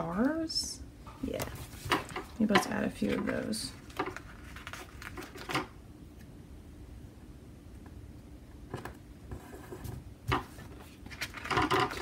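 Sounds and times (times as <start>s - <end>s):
paper rustling: 1.4s - 5.7s, 10.3s - 12.0s.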